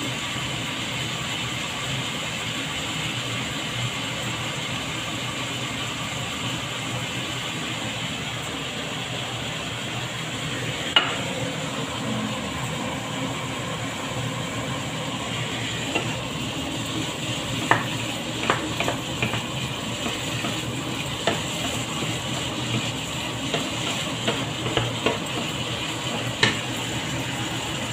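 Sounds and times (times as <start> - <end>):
ham sizzling in a frying pan: 0.0 - 27.9
wooden spatula scraping a pan: 17.6 - 26.7.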